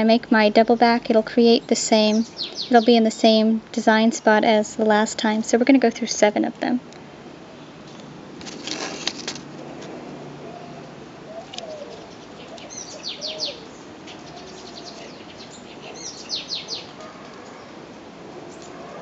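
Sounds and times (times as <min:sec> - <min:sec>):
high bird chirps: 0:02.0 - 0:02.9, 0:11.3 - 0:17.0
rustle with clicks: 0:07.8 - 0:10.2, 0:11.4 - 0:13.0
low cooing notes: 0:10.3 - 0:13.7.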